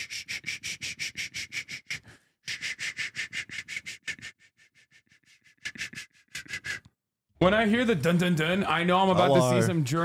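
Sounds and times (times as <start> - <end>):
rhythmic hissing breath sounds: 0.0 - 6.8.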